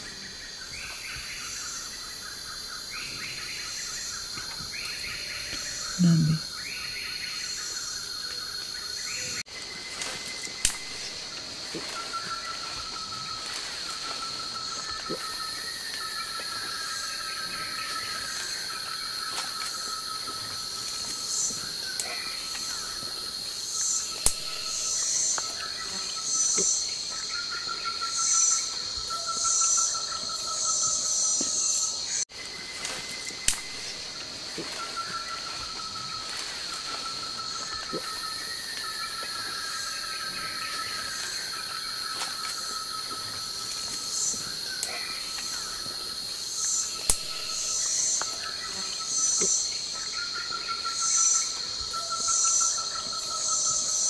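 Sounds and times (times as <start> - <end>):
insect high-pitched drone: 0.0 - 54.0
insect trills: 0.0 - 54.0.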